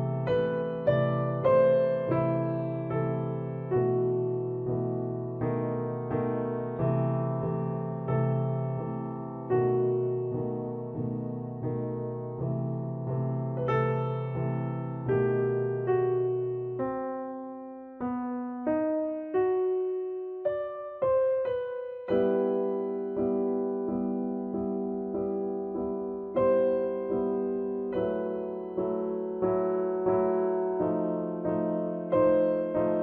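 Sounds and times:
slow gentle solo piano: 0.0 - 33.0.

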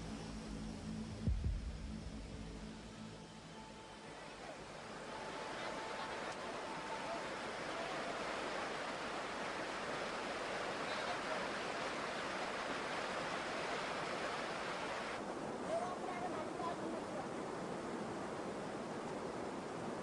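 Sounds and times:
river rushing: 2.8 - 20.0.

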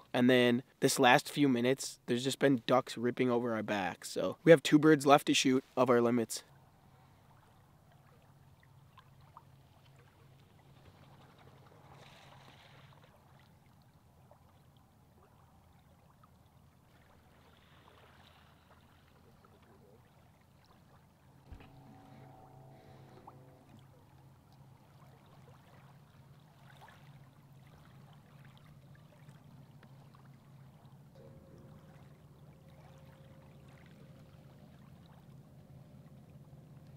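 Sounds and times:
low steady hum: 0.0 - 36.9
small waves lapping: 6.5 - 36.9
faint tone: 21.4 - 26.2, 30.7 - 36.9.

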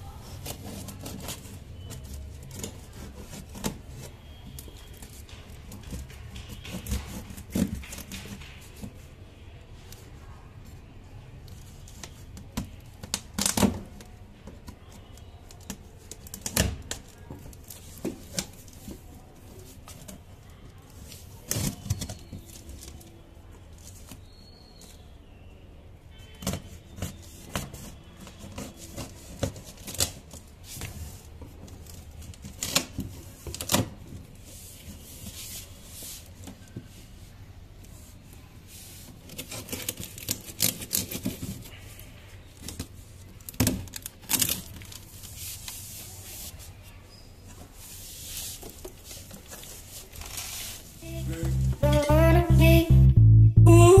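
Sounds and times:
scrapes and knocks on cardboard: 5.0 - 9.0.

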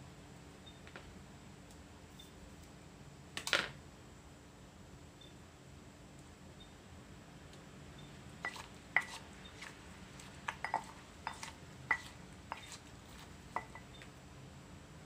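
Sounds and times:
wooden pestle knocking in mortar: 8.4 - 9.7, 10.4 - 14.0.

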